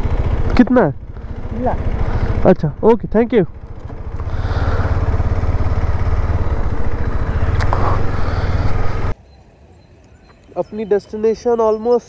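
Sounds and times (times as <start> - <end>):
motorcycle engine running: 0.0 - 9.2
road noise: 0.0 - 12.0.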